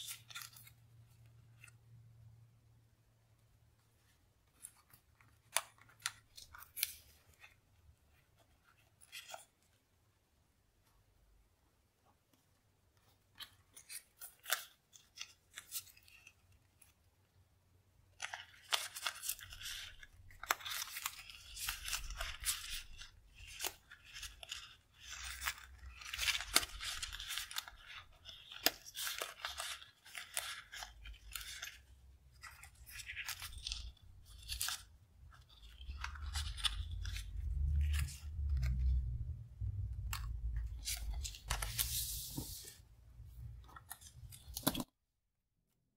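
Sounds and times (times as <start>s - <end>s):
stickers rustling and crinkling: 18.1s - 42.8s.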